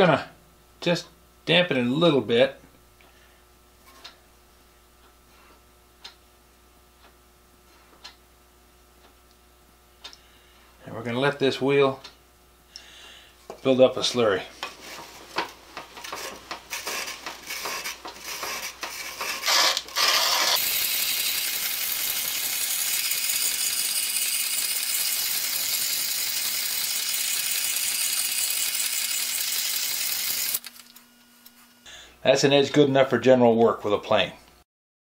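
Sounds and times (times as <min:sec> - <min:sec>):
clicking and scraping: 0:14.6 - 0:20.6
grinding wheel hiss: 0:16.0 - 0:30.8.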